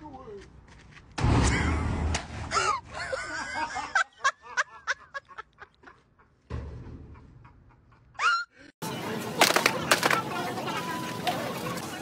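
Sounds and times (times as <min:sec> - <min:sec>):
people laughing: 0:02.5 - 0:06.4.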